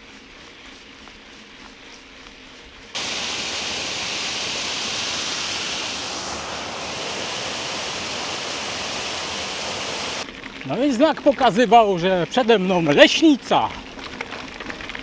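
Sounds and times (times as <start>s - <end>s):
bicycle tyres and wind hiss: 2.9s - 10.3s.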